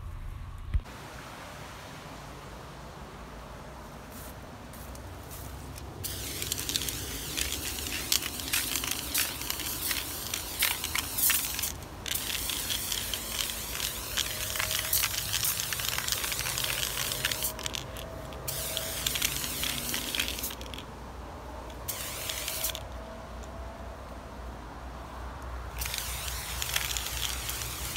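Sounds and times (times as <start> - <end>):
spray-paint can hissing: 6.0 - 20.8, 21.8 - 22.8, 25.8 - 27.9.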